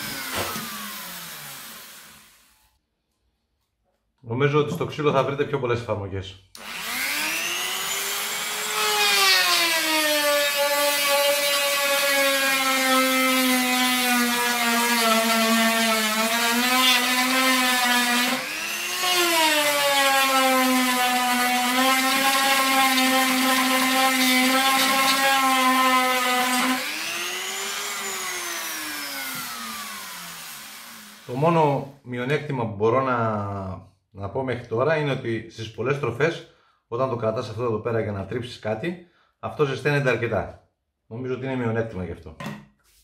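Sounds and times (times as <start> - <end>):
rotary tool whining on wood: 0.0 - 2.7, 6.6 - 31.4.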